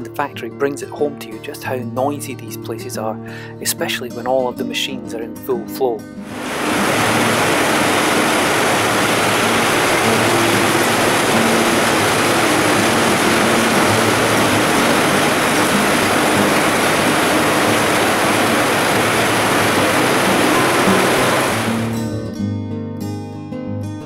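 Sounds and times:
power looms running: 6.3s - 21.9s.

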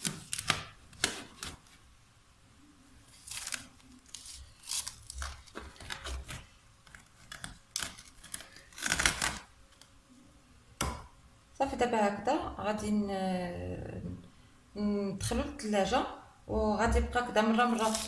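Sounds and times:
cling film tearing: 0.0s - 1.6s, 3.1s - 9.5s, 17.7s - 18.0s
cling film crinkling: 3.1s - 9.5s.

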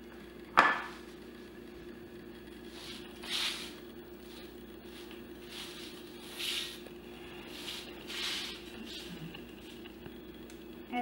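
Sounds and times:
spatula swishing across buttercream: 2.6s - 9.8s.

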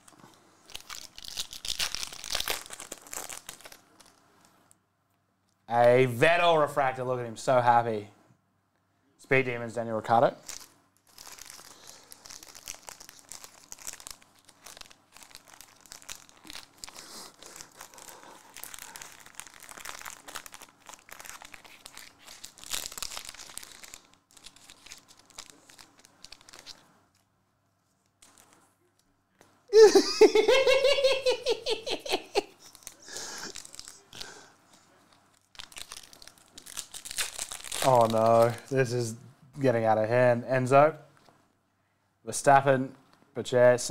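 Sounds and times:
foil wrappers crinkling: 0.0s - 4.2s, 10.4s - 27.3s, 28.1s - 28.7s, 30.4s - 38.9s
man laughing: 29.7s - 33.6s.

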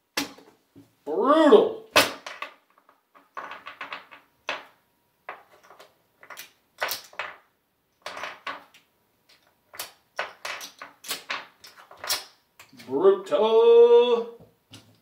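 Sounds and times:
casino chips clicking: 8.0s - 12.8s.

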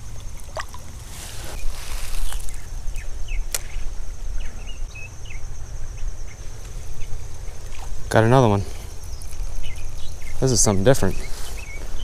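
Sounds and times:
water splashing: 0.0s - 2.0s
high insect trill: 0.0s - 12.0s.

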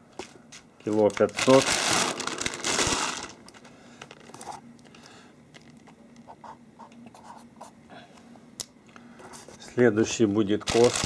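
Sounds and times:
bag rustling and crinkling: 0.8s - 4.6s, 10.6s - 11.0s.

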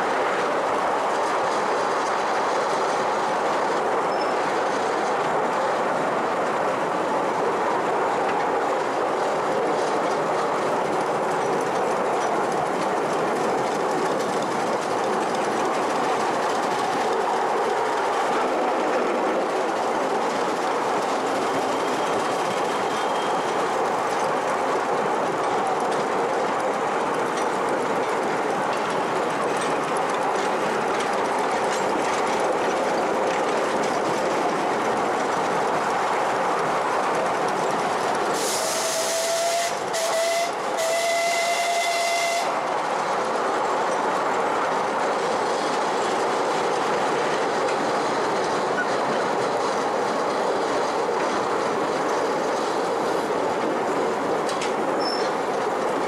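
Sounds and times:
wheels clattering on track: 0.0s - 56.0s
steam hissing: 37.7s - 43.0s
steam whistle: 38.4s - 42.6s.

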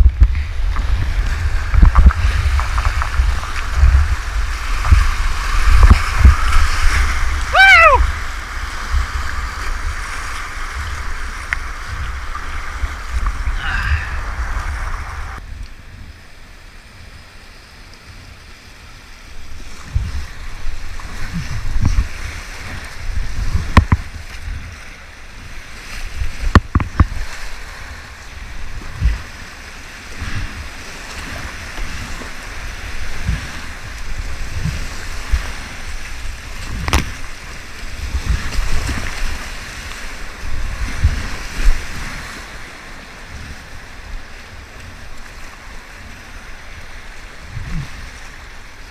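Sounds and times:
whitewater rushing: 0.0s - 15.4s
wind buffeting microphone: 0.0s - 16.3s, 19.3s - 48.9s.

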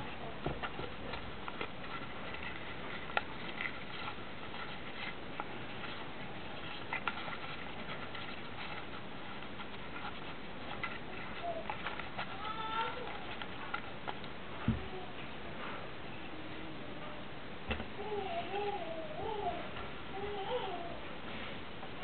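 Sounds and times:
paper crinkling: 0.2s - 14.4s.

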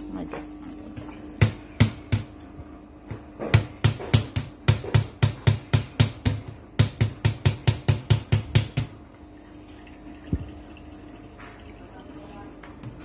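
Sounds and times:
faint steady hum: 0.0s - 13.0s
colander knocking in sink: 3.4s - 9.0s.

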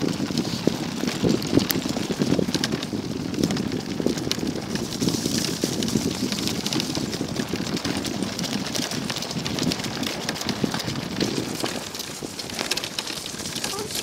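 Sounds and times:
cart wheels rumbling on dirt: 0.0s - 14.0s
rattle of small clicks: 9.6s - 14.0s.

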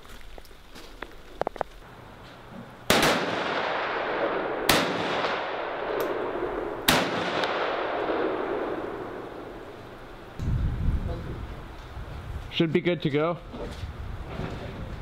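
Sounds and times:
rifle shots with rolling echo: 2.9s - 10.4s.

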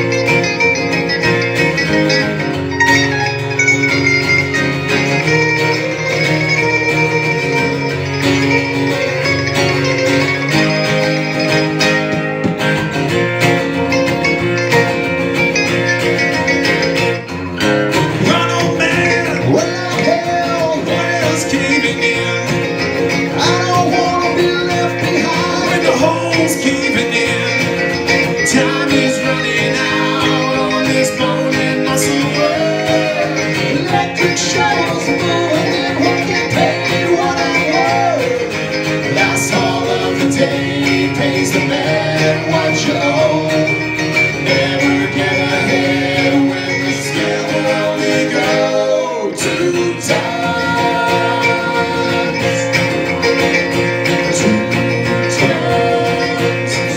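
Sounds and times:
small plucked string instrument: 0.0s - 47.9s
acoustic guitar strumming: 0.0s - 56.9s
man singing: 18.0s - 56.9s
woman singing: 28.5s - 38.5s, 44.5s - 52.7s, 54.4s - 56.9s.

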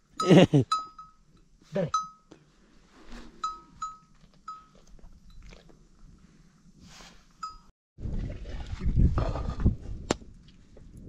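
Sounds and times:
livestock neck bells ringing: 0.0s - 2.4s, 3.4s - 5.4s, 7.4s - 7.7s.

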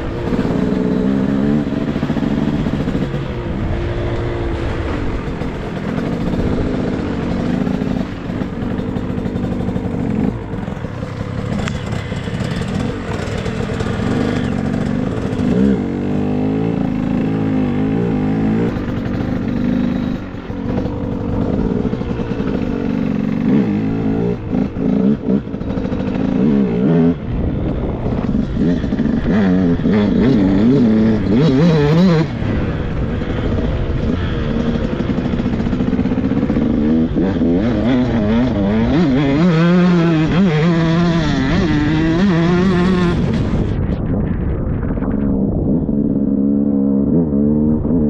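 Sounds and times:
motocross engine revving: 0.0s - 43.8s.

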